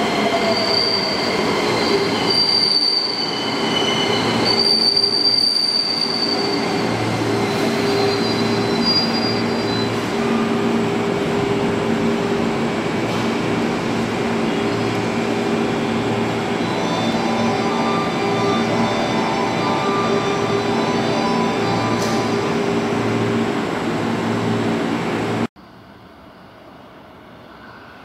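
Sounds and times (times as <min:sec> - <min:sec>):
high wheel squeal: 0:00.0 - 0:10.8
electric train hum and rumble: 0:00.0 - 0:28.0.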